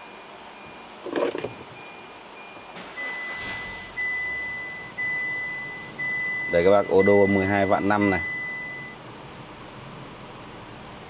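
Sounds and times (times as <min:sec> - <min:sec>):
short high beeps: 0:01.5 - 0:07.4
engine starting: 0:02.8 - 0:04.1
dashboard chimes: 0:04.0 - 0:09.0.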